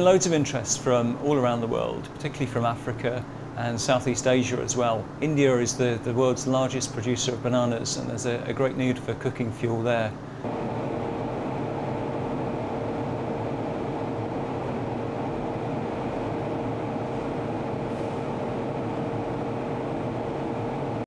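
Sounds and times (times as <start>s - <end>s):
constant hum: 0.0s - 21.0s
stove fire roaring: 0.0s - 21.0s.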